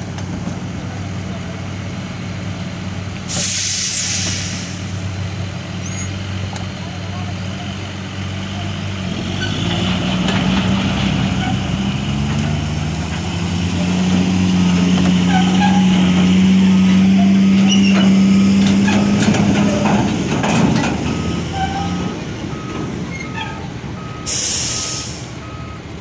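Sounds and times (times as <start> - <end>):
diesel engine working hard: 0.0 - 26.0
short hiss of air: 3.3 - 5.0, 24.3 - 25.4
reversing alarm beeping: 21.1 - 23.4, 24.0 - 25.9.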